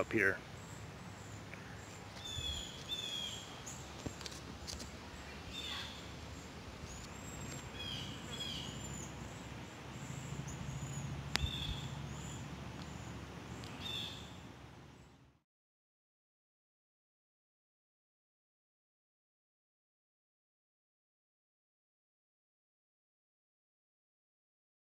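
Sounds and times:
songbirds chirping and whistling: 0.1s - 15.2s.

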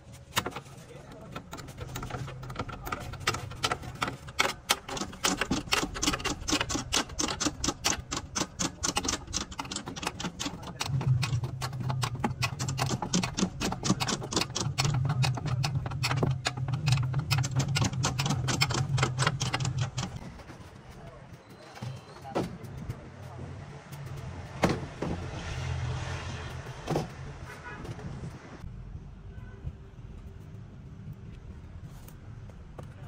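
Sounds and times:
machinery clicking and rattling: 0.2s - 25.2s.

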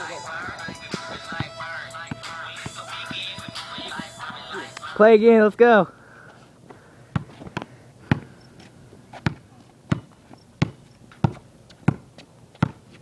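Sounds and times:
basketball bouncing on concrete: 0.0s - 4.4s, 7.1s - 8.3s, 9.1s - 13.0s.

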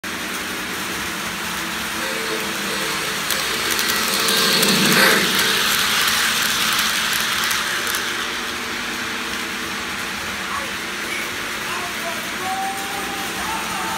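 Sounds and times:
model train rumbling past: 0.1s - 13.9s
wheels clicking over rails: 0.4s - 11.6s.

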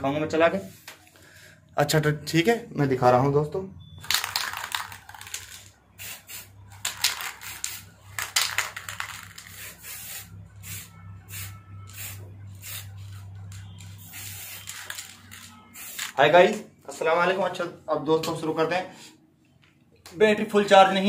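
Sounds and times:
aerosol spray hissing bursts: 6.0s - 6.5s, 9.4s - 13.1s, 14.0s - 14.8s, 15.7s - 16.1s.

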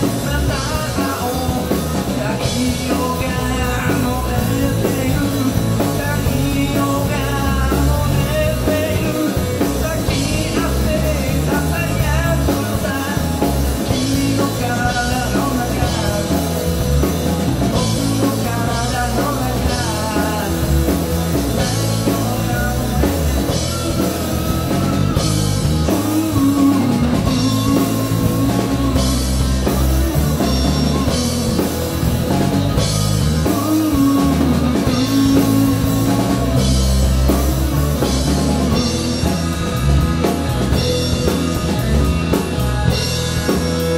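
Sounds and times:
drum kit: 0.0s - 43.9s
electric bass: 0.0s - 43.9s
electric guitar: 0.0s - 43.9s
person singing: 0.0s - 43.9s.

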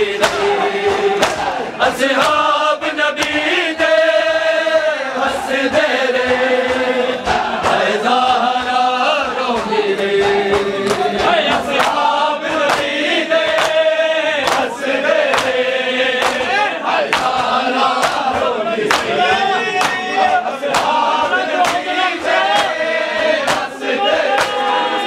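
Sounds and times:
men chanting together: 0.0s - 25.0s
hands beating on chests: 0.1s - 1.6s, 16.2s - 24.8s.

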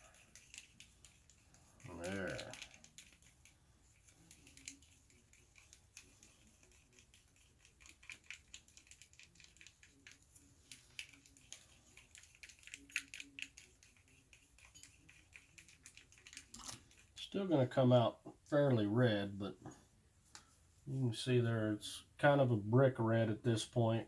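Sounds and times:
paintbrush tapping and scraping cup: 0.0s - 17.3s.

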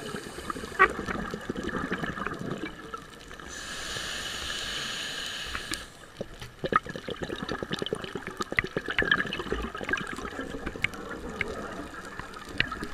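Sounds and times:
exhaled air bubbles gurgling: 0.0s - 3.6s, 6.2s - 12.9s
diver inhaling through regulator: 3.4s - 6.1s.

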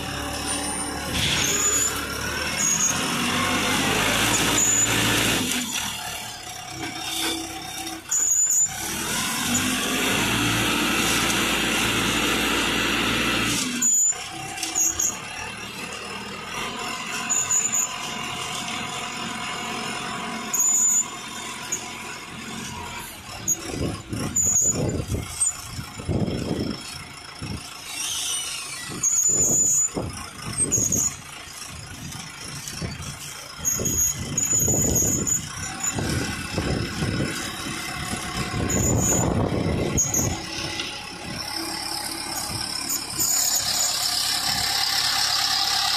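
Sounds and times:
short high squeals: 0.0s - 11.2s, 12.6s - 15.4s, 17.2s - 18.2s, 20.4s - 21.9s, 27.8s - 31.3s, 32.5s - 45.9s
diesel truck engine running: 0.0s - 45.9s
loader arm lifting bucket: 0.0s - 45.9s.

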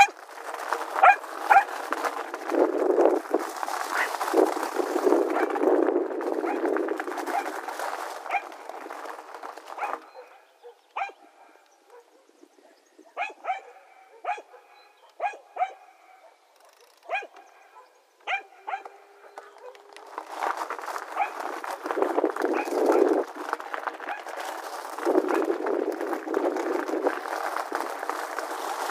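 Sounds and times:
dog barking: 1.0s - 1.7s, 9.8s - 19.9s.

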